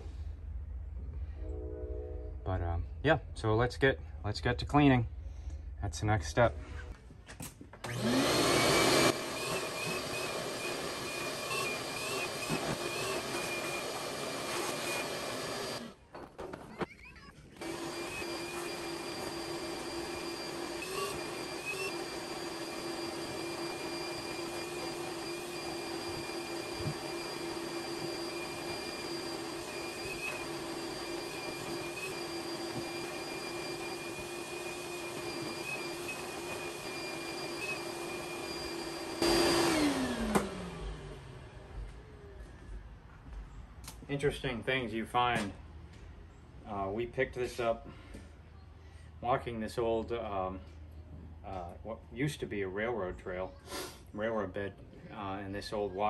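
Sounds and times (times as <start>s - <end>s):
vacuum cleaner motor whining: 7.8s - 16.0s, 16.8s - 42.6s.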